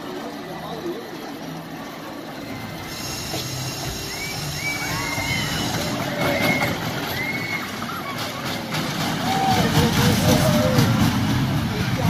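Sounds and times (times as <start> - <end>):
roller coaster rumbling on track: 0.0 - 12.0
high squeals: 2.4 - 8.6.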